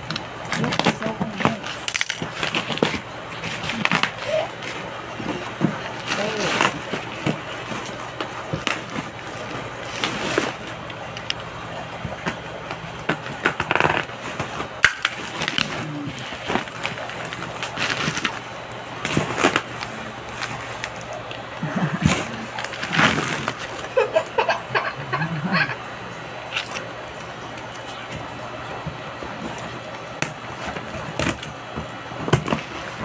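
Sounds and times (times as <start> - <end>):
cardboard box rustling and scraping: 2.3 - 10.8, 22.0 - 23.8.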